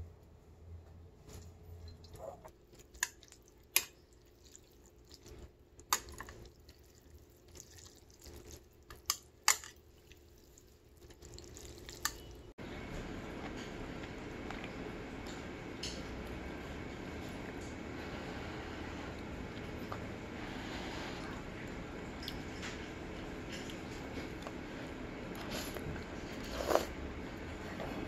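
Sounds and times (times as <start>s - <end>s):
wet sloshing: 1.8s - 12.5s
chopsticks stirring noodles: 1.9s - 12.5s.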